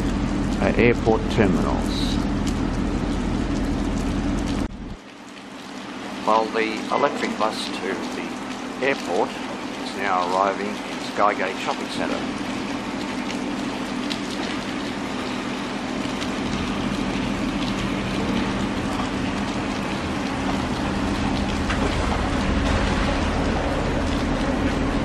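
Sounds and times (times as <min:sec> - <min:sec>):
bus rumbling on wet road: 0:00.0 - 0:02.4, 0:09.1 - 0:25.0
light rain on pavement: 0:00.0 - 0:25.0.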